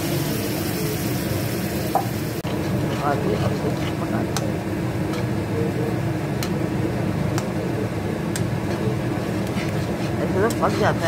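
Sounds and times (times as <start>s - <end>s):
metal spatula stirring gravy: 8.7s - 11.0s.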